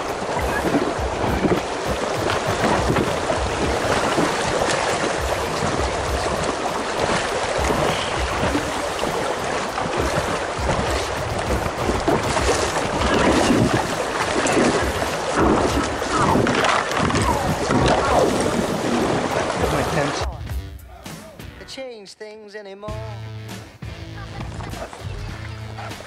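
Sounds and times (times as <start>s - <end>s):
wind on microphone: 0.0s - 19.9s
river water rushing and splashing: 0.0s - 20.3s.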